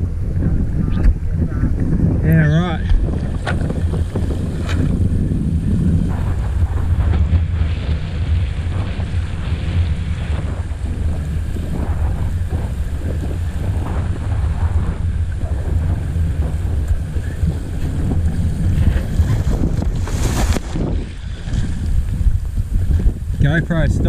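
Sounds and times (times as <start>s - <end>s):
wind buffeting microphone: 0.0s - 24.0s
water splashing against board: 6.3s - 23.2s.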